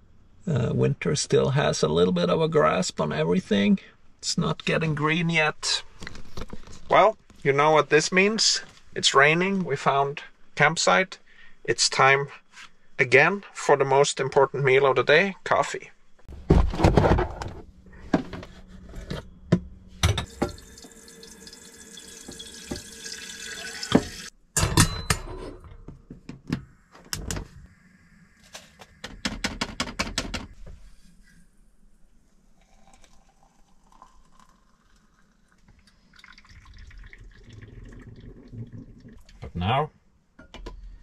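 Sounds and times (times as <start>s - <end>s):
tap water filling a kettle: 20.1s - 24.3s, 32.6s - 39.2s.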